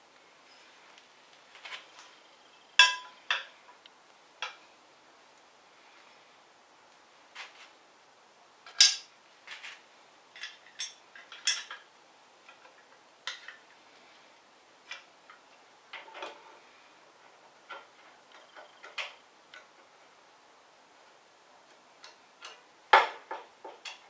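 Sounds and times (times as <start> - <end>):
sharp metal clank: 2.8 - 3.4.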